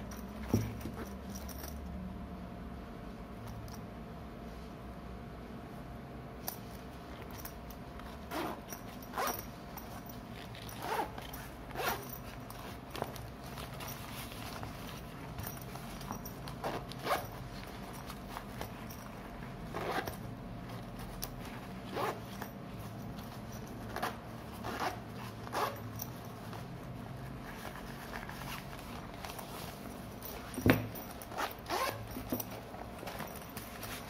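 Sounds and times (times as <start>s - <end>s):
zipper rasping: 7.1s - 34.0s.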